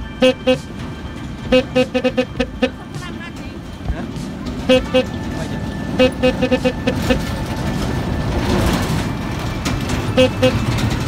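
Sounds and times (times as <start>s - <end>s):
truck horn toots: 0.0s - 2.9s, 4.6s - 5.3s, 5.9s - 7.4s, 10.1s - 11.0s
truck engine and tyres: 0.0s - 11.0s.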